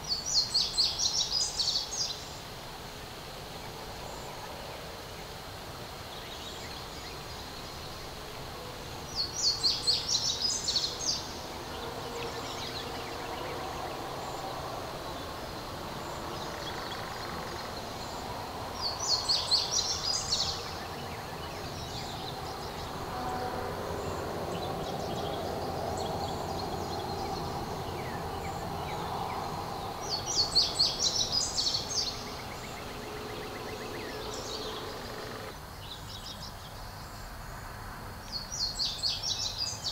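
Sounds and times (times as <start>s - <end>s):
small songbird singing: 0.0s - 2.4s, 9.1s - 23.0s, 24.0s - 37.2s
outdoor background hum: 10.2s - 35.6s.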